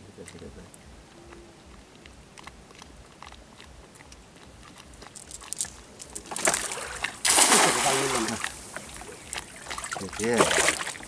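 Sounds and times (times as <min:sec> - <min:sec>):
cast net clicking and rustling: 0:05.1 - 0:11.0.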